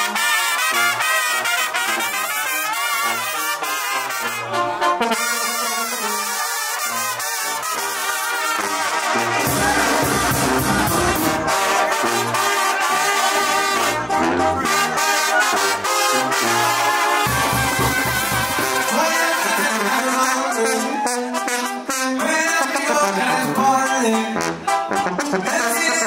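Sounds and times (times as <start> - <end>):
brass band playing: 0.0 - 26.0
sousaphone bass line: 9.2 - 11.6, 14.1 - 21.0.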